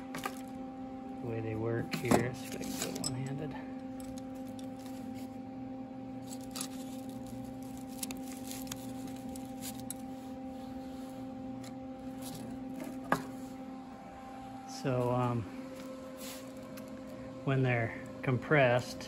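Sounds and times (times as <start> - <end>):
steady hum: 0.0 - 19.0
plastic bag crinkling: 6.2 - 10.1.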